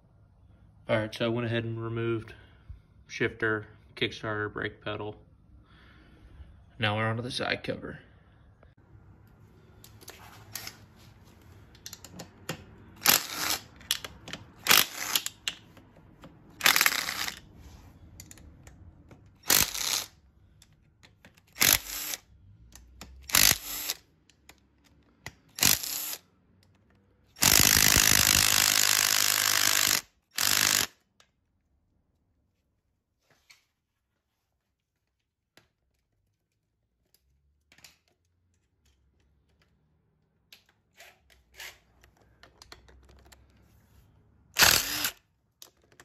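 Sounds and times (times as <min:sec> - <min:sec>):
ratchet wrench clicking: 0:13.0 - 0:15.6, 0:16.6 - 0:17.4, 0:19.4 - 0:20.1, 0:22.8 - 0:24.5, 0:25.5 - 0:26.2, 0:27.4 - 0:31.0, 0:44.6 - 0:45.2.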